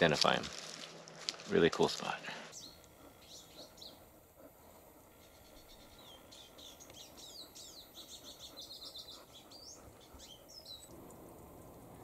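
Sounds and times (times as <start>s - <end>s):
small songbird singing: 2.5s - 4.1s, 5.2s - 11.8s.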